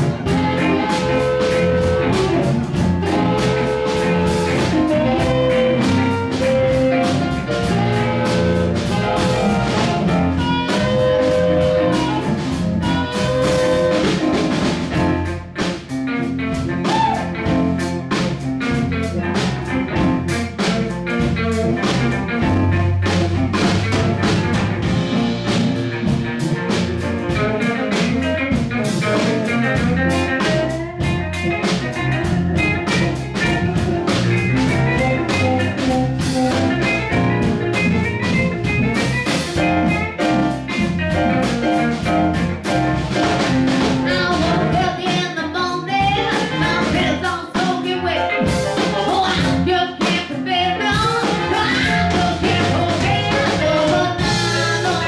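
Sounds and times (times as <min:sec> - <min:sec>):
harmonica lead: 0:00.0 - 0:15.2, 0:20.6 - 0:43.5, 0:44.1 - 0:47.7
drum kit beat: 0:00.0 - 0:55.0
electric guitar: 0:00.0 - 0:55.0.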